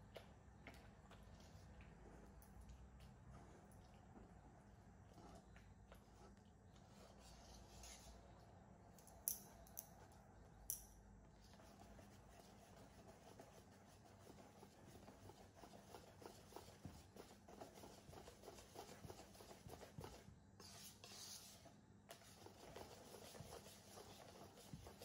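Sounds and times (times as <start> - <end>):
whisk stirring batter in bowl: 11.4 - 25.0.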